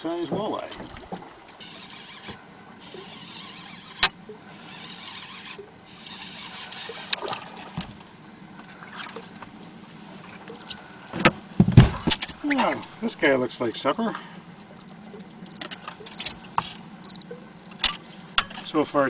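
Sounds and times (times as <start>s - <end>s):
boat background noise: 0.0s - 19.0s.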